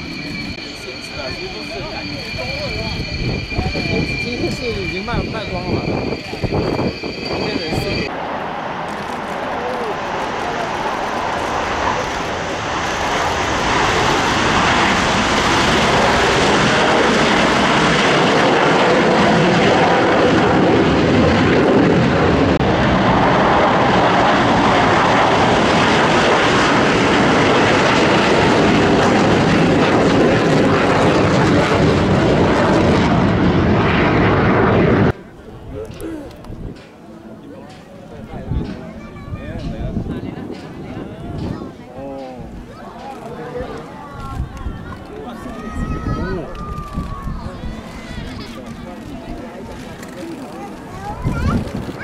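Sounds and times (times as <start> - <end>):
jet fighter engines roaring: 0.0 - 52.0.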